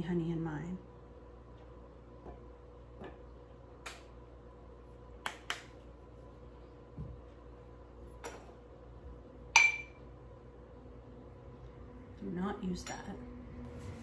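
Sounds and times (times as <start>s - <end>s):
dishware clinking and ringing: 9.6s - 10.0s.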